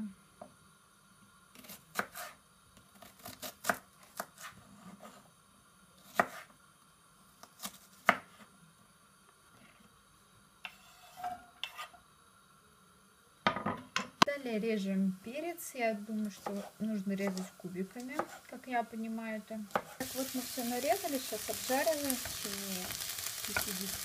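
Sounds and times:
knife scraping onion off board: 1.6 - 2.4, 3.0 - 5.2, 6.0 - 6.5, 10.6 - 12.0, 16.4 - 18.6, 19.7 - 20.6
knife chopping on wooden board: 6.1 - 6.5, 18.2 - 18.4, 19.7 - 20.0.

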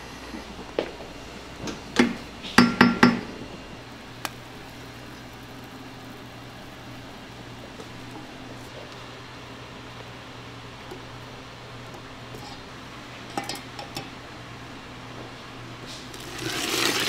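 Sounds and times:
utensils clinking on steel cookware: 13.3 - 14.2.

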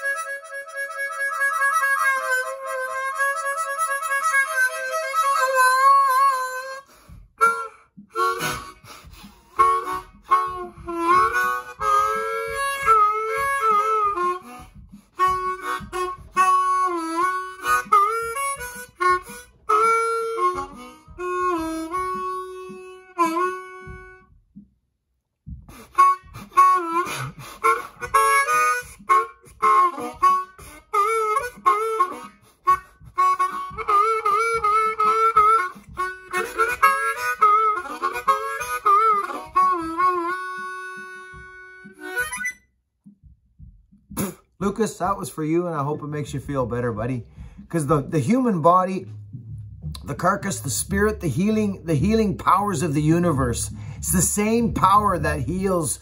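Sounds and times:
harmonica playing slow tune: 0.0 - 24.4, 25.6 - 42.7, 46.0 - 56.0.

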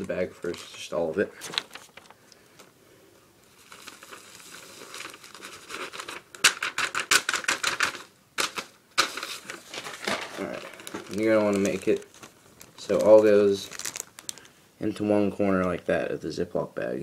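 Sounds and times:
plastic bag crinkling: 0.0 - 2.7, 3.4 - 15.8
powder crackling ticks: 10.4 - 14.6.

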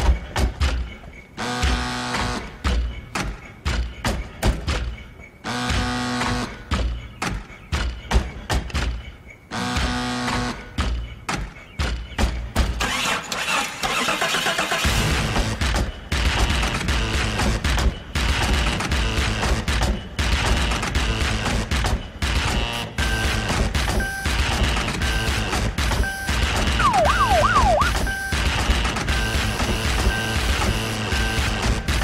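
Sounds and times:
electronic music with heavy beat: 14.9 - 32.0
short repeated beeps: 26.0 - 28.4.

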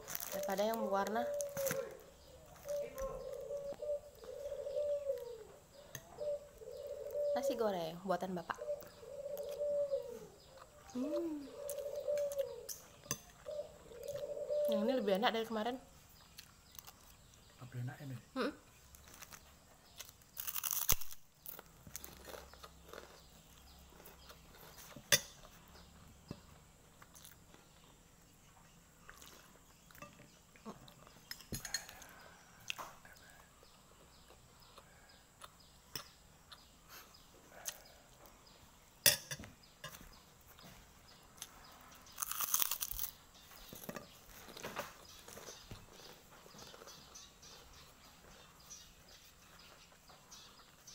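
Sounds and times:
cracker crunching: 0.0 - 4.4, 16.2 - 17.5, 18.8 - 25.5, 26.9 - 28.0, 29.0 - 33.2, 41.4 - 47.8
chewing: 8.7 - 14.8, 16.2 - 17.5, 18.9 - 25.9, 27.0 - 27.9, 28.6 - 38.4, 41.4 - 48.5.

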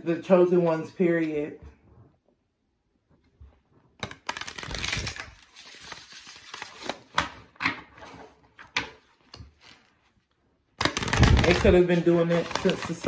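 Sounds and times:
cards being shuffled by hand: 4.0 - 7.4, 10.8 - 13.0.

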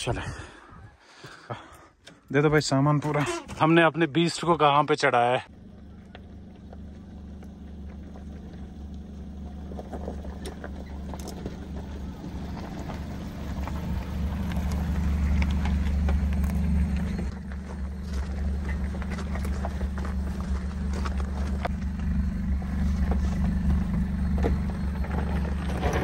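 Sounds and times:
car engine running: 5.4 - 26.0
stones crunching under tyres: 5.6 - 26.0.

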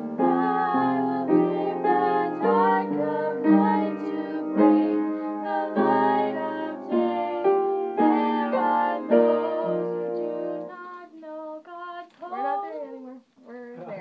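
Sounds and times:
piano music: 0.0 - 10.8
woman singing: 8.0 - 14.0.

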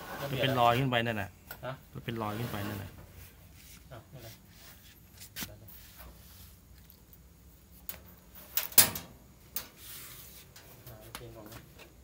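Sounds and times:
short scrape: 2.2 - 6.6.

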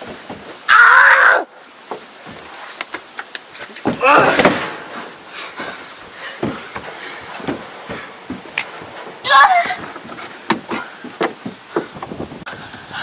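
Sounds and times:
bodies and chairs bumping: 0.0 - 0.6, 1.8 - 12.4
young men yelling: 9.2 - 9.8.

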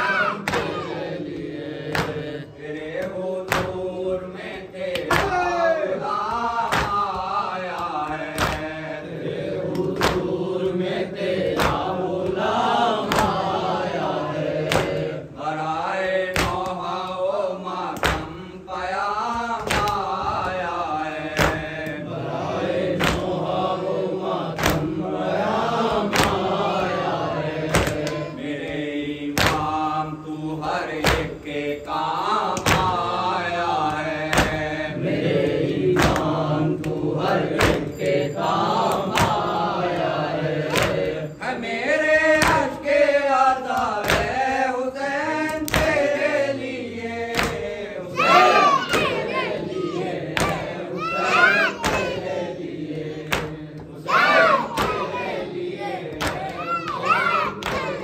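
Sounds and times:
men chanting in unison: 0.0 - 58.0
person reciting into a microphone: 0.0 - 58.0
hands beating on chests: 45.6 - 46.1, 51.8 - 52.2, 56.1 - 58.0.

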